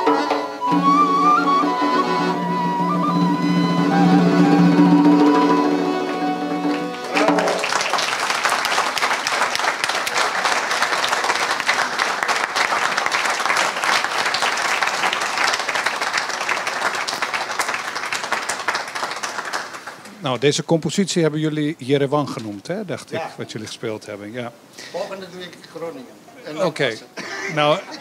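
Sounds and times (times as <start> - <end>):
folk ensemble holding final chord: 0.0 - 7.9
audience applause: 0.0 - 20.4.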